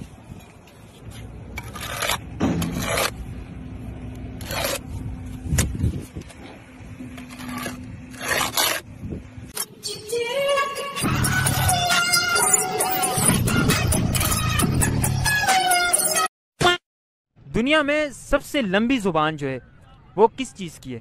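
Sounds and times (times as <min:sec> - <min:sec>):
steel trowel scraping mortar: 0:01.0 - 0:03.3, 0:04.2 - 0:05.7, 0:07.0 - 0:09.0.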